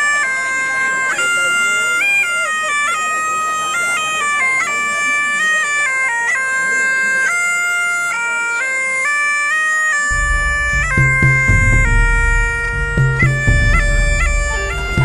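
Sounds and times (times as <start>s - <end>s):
bagpipe playing a melody: 0.0s - 15.0s
low rumble: 10.1s - 15.0s.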